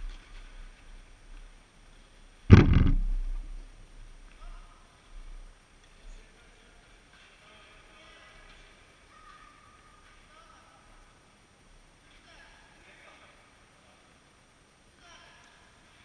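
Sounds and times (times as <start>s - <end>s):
faint short knocks: 2.5s - 3.6s
loud thump in a hall: 2.5s - 3.8s.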